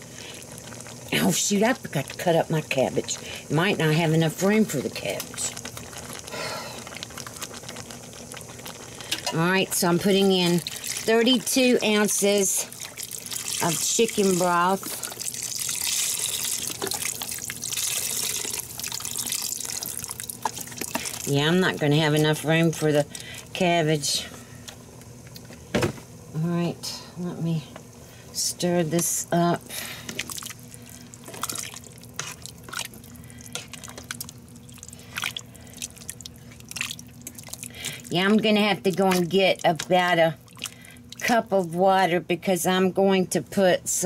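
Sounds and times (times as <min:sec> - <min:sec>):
broth pouring into a pot: 0:00.0 - 0:22.0, 0:29.6 - 0:38.2
soup sloshing and dripping: 0:10.6 - 0:11.5, 0:12.6 - 0:21.4, 0:30.1 - 0:41.3.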